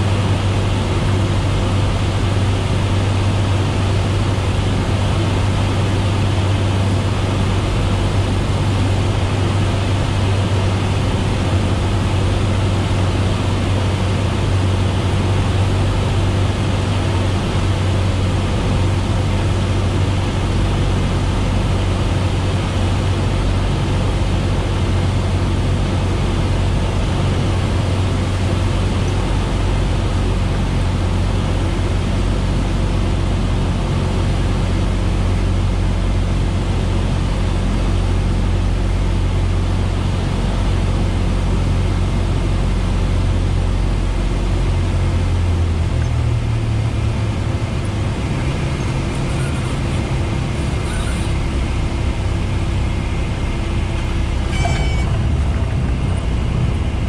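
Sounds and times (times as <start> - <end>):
aircraft engine and propeller droning: 0.0 - 57.0
rushing air: 46.5 - 57.0.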